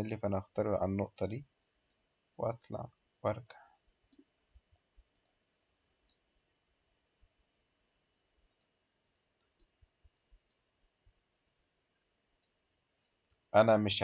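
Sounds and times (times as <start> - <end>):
faint computer mouse clicks: 5.1 - 6.2, 8.5 - 10.6, 12.3 - 12.6.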